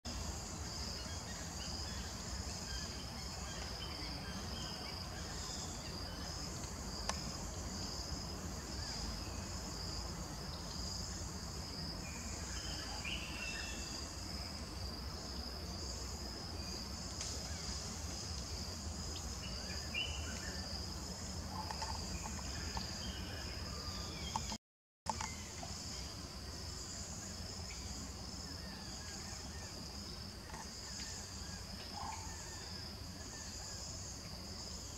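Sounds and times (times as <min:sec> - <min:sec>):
insects buzzing: 0:00.1 - 0:34.9.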